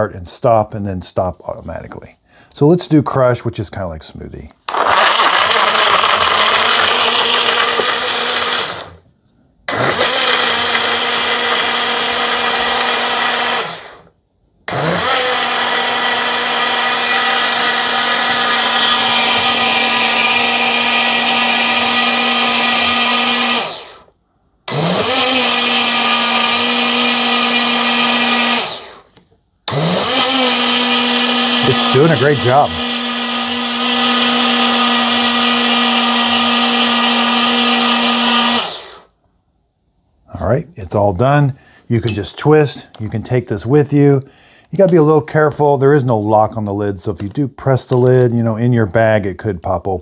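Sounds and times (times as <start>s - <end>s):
blender crushing frozen fruit: 4.6s - 9.0s, 9.7s - 14.1s, 14.7s - 24.1s, 24.7s - 29.1s, 29.7s - 39.1s.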